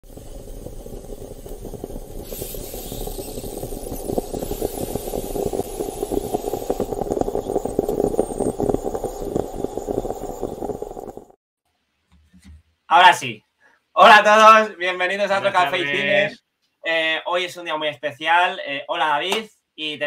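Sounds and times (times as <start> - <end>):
hiss: 0.0 - 11.1.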